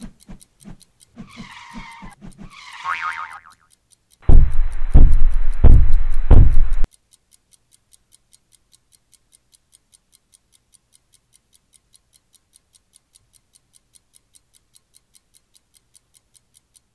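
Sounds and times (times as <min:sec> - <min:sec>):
clock ticking: 0:00.0 - 0:16.9
heavy thumps: 0:04.3 - 0:06.8.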